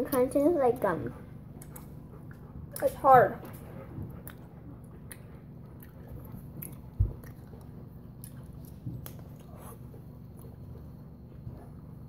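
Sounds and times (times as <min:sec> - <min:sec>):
wet mouth clicks: 0:04.2 - 0:09.5
chewing hard candy: 0:04.2 - 0:10.8.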